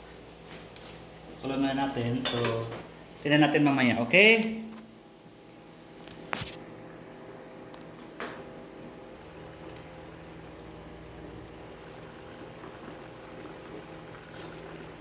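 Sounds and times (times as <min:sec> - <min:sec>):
gas stove hiss: 0:09.2 - 0:15.0
pots simmering and bubbling: 0:09.2 - 0:15.0.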